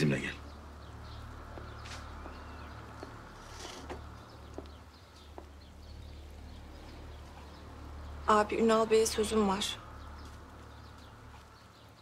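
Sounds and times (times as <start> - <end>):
faint bird chirps: 0.0 - 7.6.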